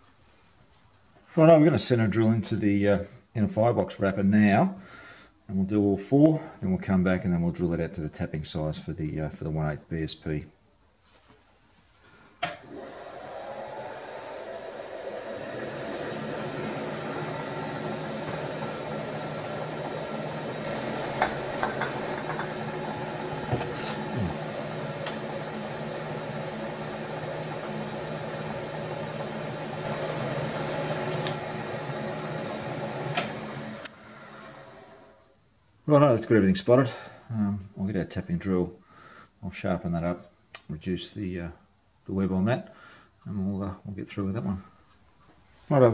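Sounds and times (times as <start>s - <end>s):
milling machine humming: 12.5s - 35.2s.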